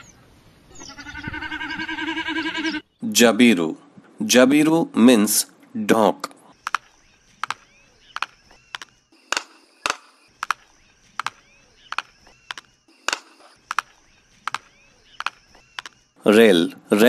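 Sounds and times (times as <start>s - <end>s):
stork clattering its bill: 6.6s - 16.0s.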